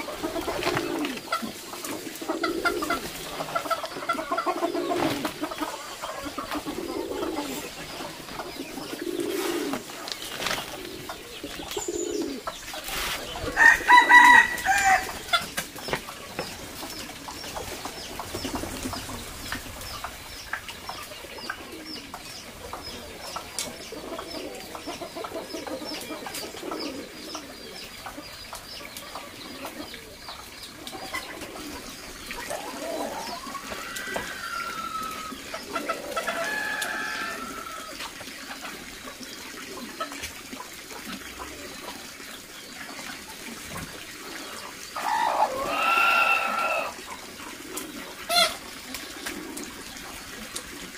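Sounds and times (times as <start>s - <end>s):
chickens calling: 0.0s - 50.9s
doves cooing: 0.0s - 50.9s.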